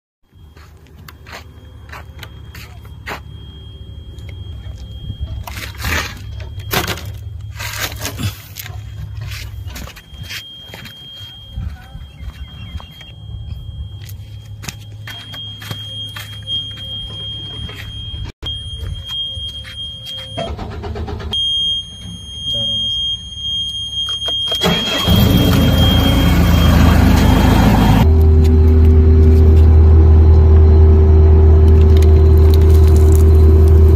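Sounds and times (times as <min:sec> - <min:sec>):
high warning beep: 0:00.3 - 0:31.3
diesel engine rumbling: 0:24.6 - 0:33.9
plastic bottle crinkling: 0:31.7 - 0:33.9.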